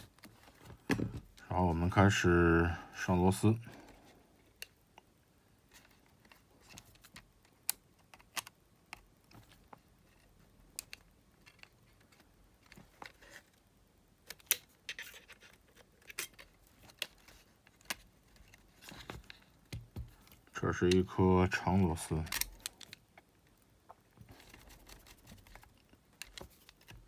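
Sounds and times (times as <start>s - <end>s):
plastic and metal parts clicking: 5.7s - 13.4s, 22.2s - 23.3s, 24.4s - 27.0s.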